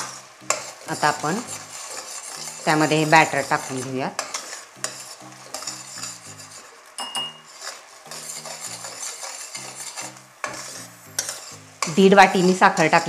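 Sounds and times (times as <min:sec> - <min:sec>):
metal spatula scraping pot: 0:00.0 - 0:13.0
metal on metal clinks: 0:07.0 - 0:07.4.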